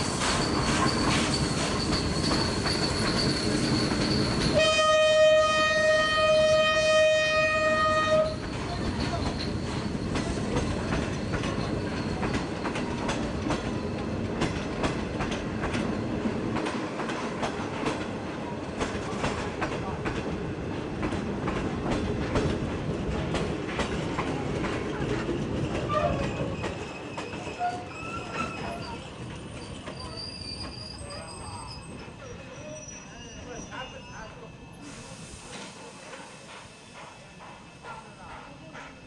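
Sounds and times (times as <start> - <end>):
train wheels clicking over rail joints: 0.0 - 4.6, 8.3 - 30.9, 35.5 - 39.0.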